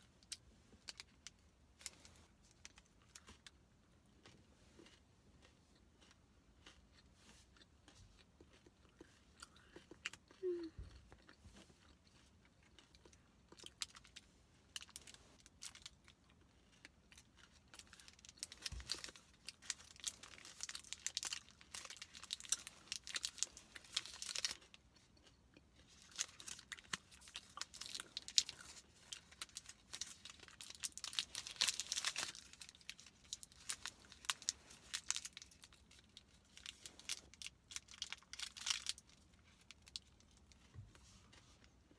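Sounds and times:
chewing: 0:04.2 - 0:14.0
foil wrapper crinkling and tearing: 0:17.7 - 0:24.8, 0:25.9 - 0:40.4.

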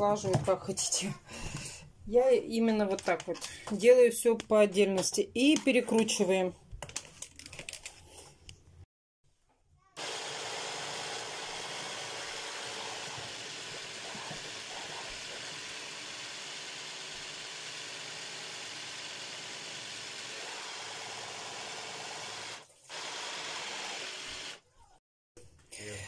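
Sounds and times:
hand blender running: 0:10.0 - 0:24.6.

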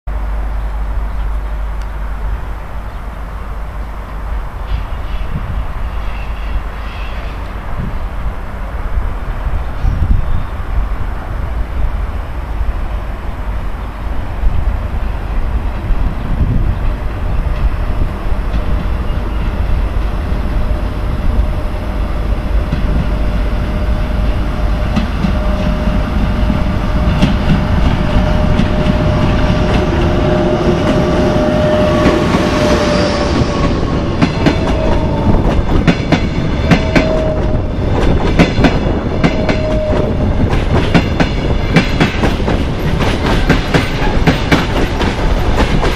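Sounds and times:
electric locomotive rumble: 0:00.1 - 0:45.9
locomotive whine: 0:00.1 - 0:45.9
train wheels clacking on rails: 0:22.6 - 0:45.9.

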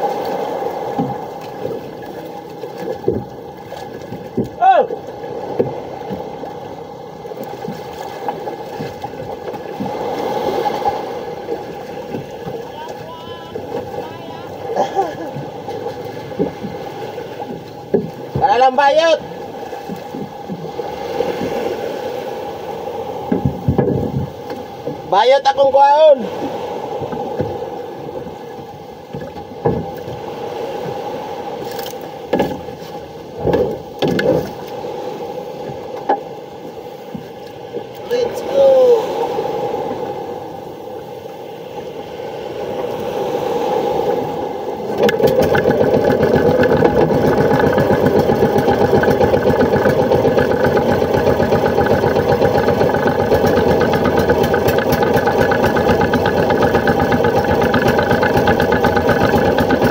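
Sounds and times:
constant engine hum: 0:00.0 - 0:18.6, 0:39.4 - 0:59.9
water rushing along boat hull: 0:00.0 - 0:59.9
water slapping: 0:00.0 - 0:59.9
knocks and scrapes on boat hull: 0:02.7 - 0:04.6, 0:05.4 - 0:06.4, 0:15.3 - 0:18.7, 0:19.7 - 0:21.7, 0:23.2 - 0:25.1, 0:27.0 - 0:28.3, 0:29.0 - 0:30.2, 0:31.6 - 0:34.7.

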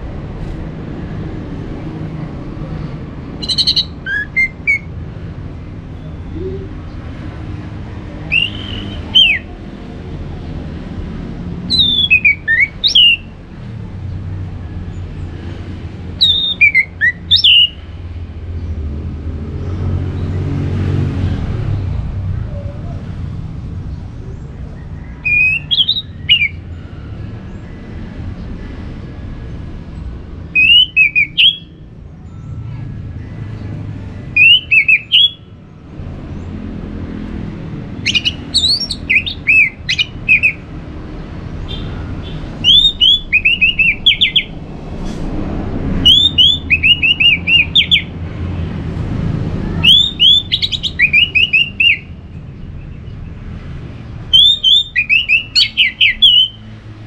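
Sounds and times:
thrush singing: 0:05.9 - 0:10.6.

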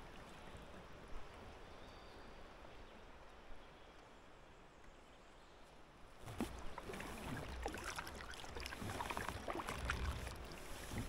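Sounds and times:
water lapping along hull: 0:00.0 - 0:03.9, 0:06.0 - 0:11.0
paddle splashing and dripping: 0:06.2 - 0:11.0.

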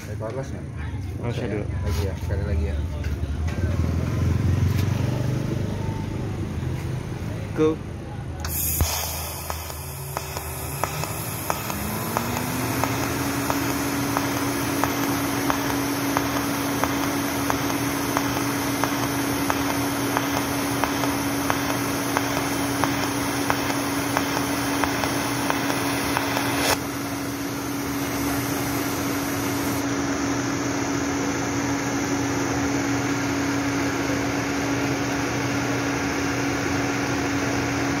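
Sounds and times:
cooling fan hum: 0:00.0 - 0:38.0
welding arc ticking: 0:08.4 - 0:26.9.

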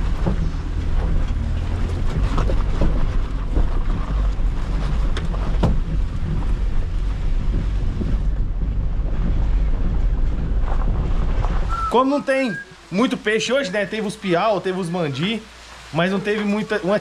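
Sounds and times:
gusty wind buffeting microphone: 0:00.0 - 0:11.9
sharp knocks: 0:05.0 - 0:11.7.

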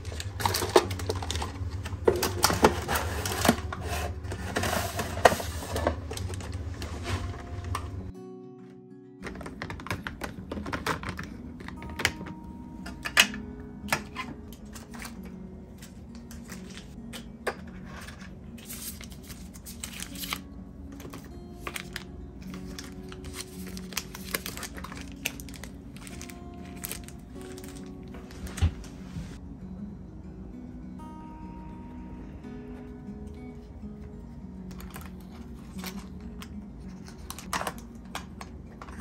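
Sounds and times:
packets crinkling: 0:00.0 - 0:08.1, 0:09.2 - 0:12.5, 0:14.1 - 0:17.0, 0:17.9 - 0:28.8, 0:34.7 - 0:39.0
soft background music: 0:00.0 - 0:39.0
bottles and jars clicking: 0:09.2 - 0:15.1.

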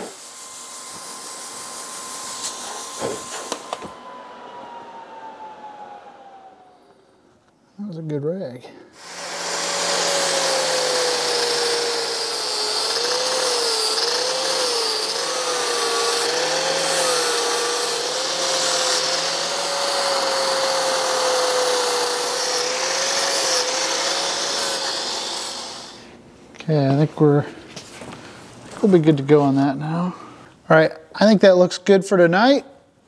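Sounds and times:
angle grinder grinding metal: 0:00.0 - 0:04.0, 0:09.0 - 0:26.1.

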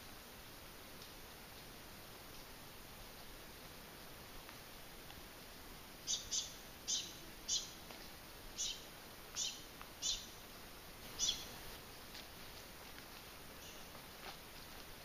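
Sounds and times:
faint steady hiss: 0:00.0 - 0:15.0
bird chirping: 0:06.0 - 0:07.8, 0:08.6 - 0:10.4, 0:11.1 - 0:11.7, 0:13.6 - 0:13.9.

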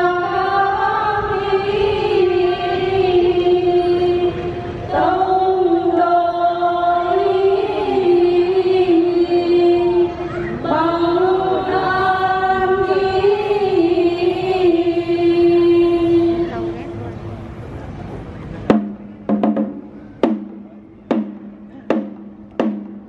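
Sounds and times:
people chanting a hymn: 0:00.0 - 0:17.0.

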